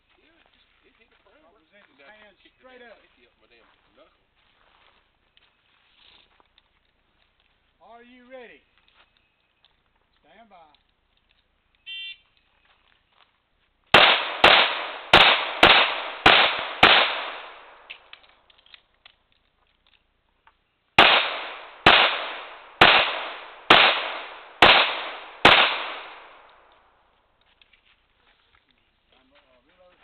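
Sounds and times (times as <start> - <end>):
handgun shots with echo: 14.0 - 18.1, 21.0 - 26.6.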